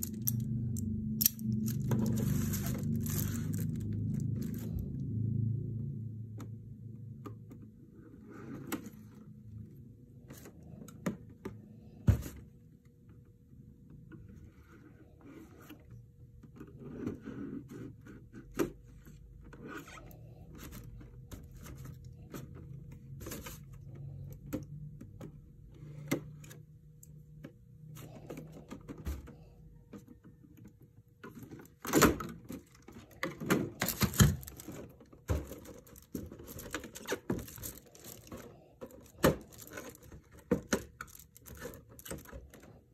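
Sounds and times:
plastic packaging clicks and scrapes: 0:00.0 - 0:05.0, 0:27.4 - 0:42.9
plastic knocks and rustles: 0:28.1 - 0:42.8.

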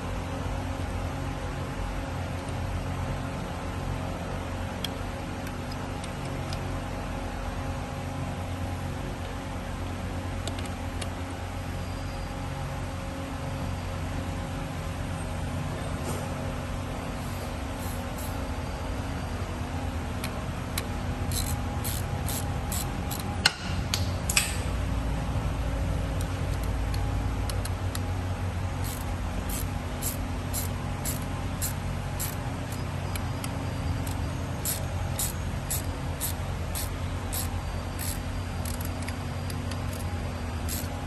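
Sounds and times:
hand ratchet clicking: 0:20.2 - 0:24.5, 0:28.8 - 0:41.0.

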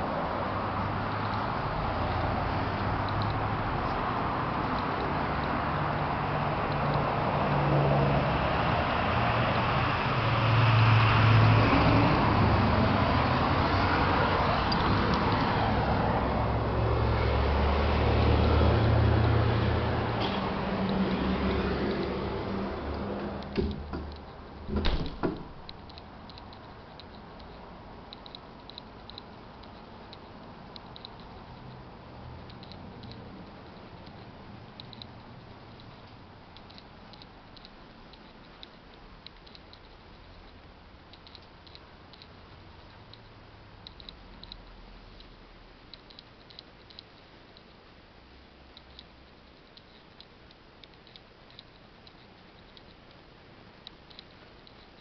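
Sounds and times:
low steady hiss: 0:00.0 - 0:55.0
light ticks: 0:03.0 - 0:04.0, 0:25.4 - 0:31.8, 0:32.4 - 0:48.0, 0:48.7 - 0:55.0.

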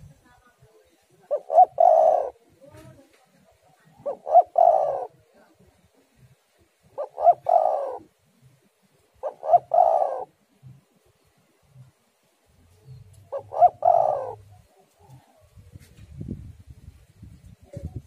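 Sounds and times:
dove cooing: 0:01.2 - 0:12.0, 0:12.8 - 0:15.8.

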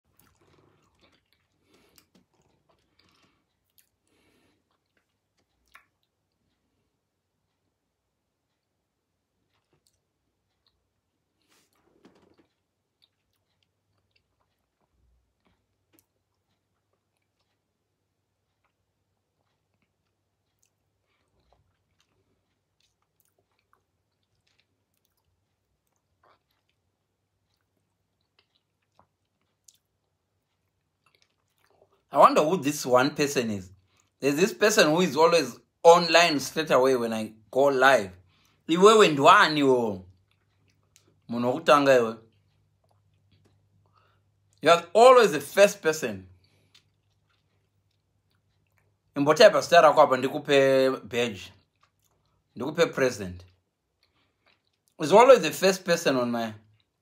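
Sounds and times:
mouth clicks and smacks: 0:00.1 - 0:06.6, 0:09.4 - 0:32.1, 0:39.9 - 0:44.7, 0:45.5 - 0:49.2, 0:51.5 - 0:55.0.

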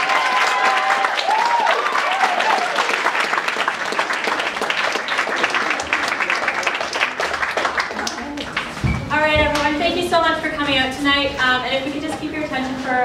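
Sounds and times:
shouted cheer: 0:00.0 - 0:03.3
audience applauding: 0:00.0 - 0:08.8.

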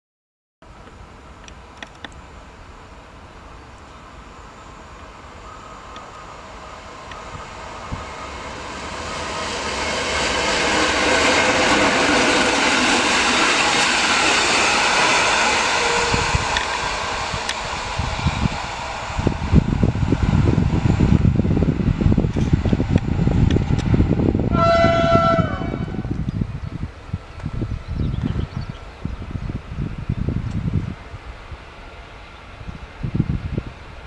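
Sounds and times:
train passing on rails: 0:00.6 - 0:34.0
wind buffeting microphone: 0:06.0 - 0:34.0.

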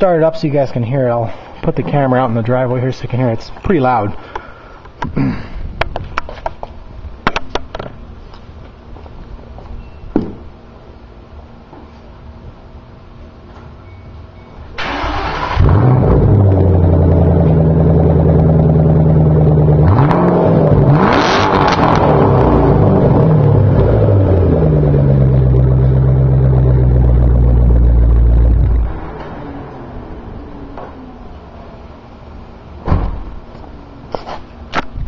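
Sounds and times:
car engine idling and revving: 0:14.8 - 0:32.8.

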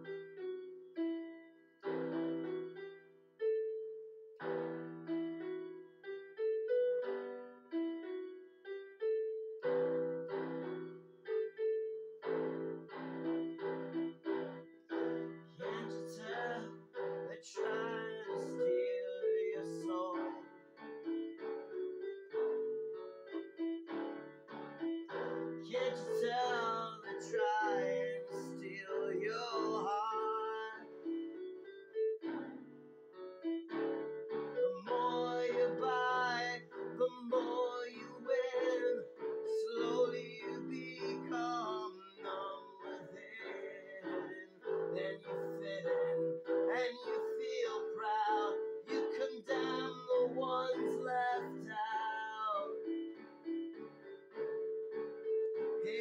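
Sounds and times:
electronic keyboard piano chords: 0:00.0 - 0:56.0
man singing: 0:15.6 - 0:20.4, 0:25.6 - 0:30.9, 0:34.7 - 0:52.9.

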